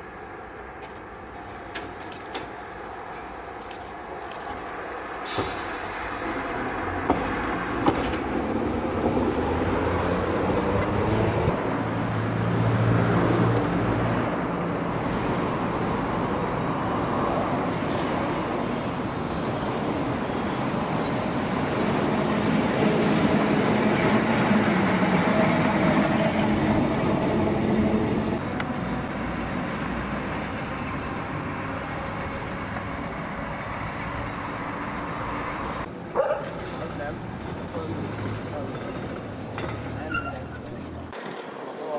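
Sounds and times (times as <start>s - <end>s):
tram wheels rumbling on rails: 0.7s - 11.7s, 14.5s - 32.8s, 36.2s - 41.9s.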